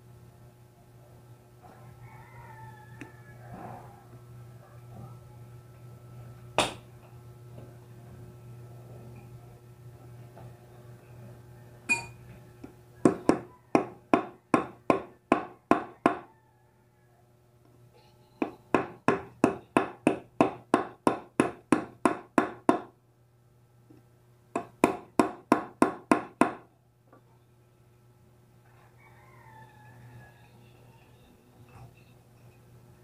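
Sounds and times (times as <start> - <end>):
hammer tapping on metal: 6.6 - 6.9, 11.9 - 12.2, 13.0 - 16.3, 18.4 - 22.9, 24.5 - 26.7.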